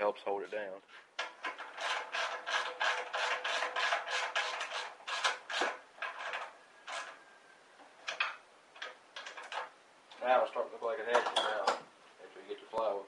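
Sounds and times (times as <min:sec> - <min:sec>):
screwdriver scraping on sheet metal: 0:01.2 - 0:07.4.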